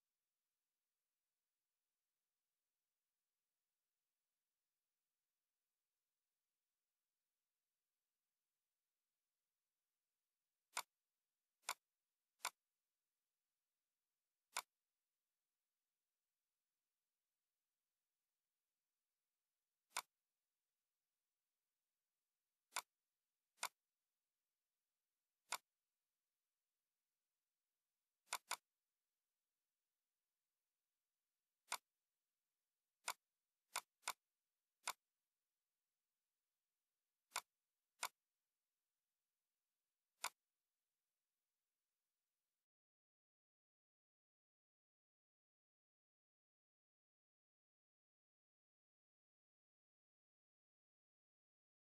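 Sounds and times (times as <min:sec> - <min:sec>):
computer mouse clicks: 0:10.7 - 0:10.9, 0:11.6 - 0:11.8, 0:12.4 - 0:12.6, 0:14.5 - 0:14.8, 0:19.9 - 0:20.2, 0:22.7 - 0:23.0, 0:23.6 - 0:23.8, 0:25.4 - 0:25.8, 0:28.3 - 0:28.7, 0:31.6 - 0:31.9, 0:33.0 - 0:34.2, 0:34.8 - 0:35.1, 0:37.3 - 0:38.2, 0:40.2 - 0:40.5.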